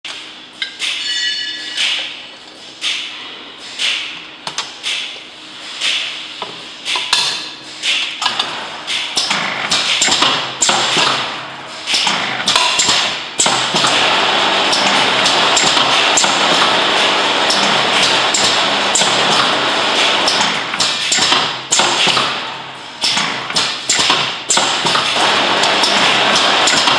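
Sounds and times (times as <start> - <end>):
capping machine hissing and humming: 1.7 - 26.9.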